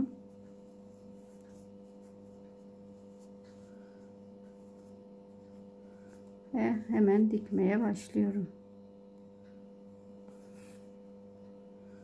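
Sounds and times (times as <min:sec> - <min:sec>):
hands rustling yarn: 0:00.0 - 0:07.3
faint electrical hum: 0:00.0 - 0:12.0.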